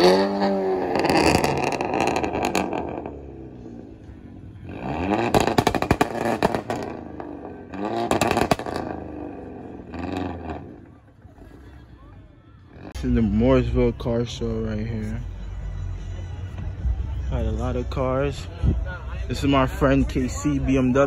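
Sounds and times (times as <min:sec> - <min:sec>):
exhaust cracks: 0:00.0 - 0:03.5, 0:04.6 - 0:11.6
car engine revving: 0:00.0 - 0:11.7.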